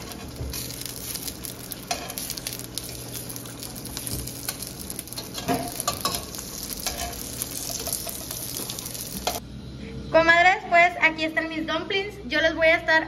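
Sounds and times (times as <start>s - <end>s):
dumplings sizzling in oil: 0.0s - 9.4s
metal tongs clicking on pan: 4.0s - 8.4s.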